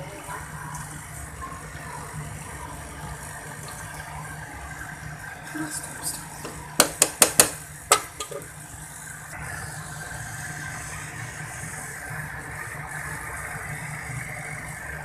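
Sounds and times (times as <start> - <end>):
sharp clacks on pan: 6.8 - 8.5.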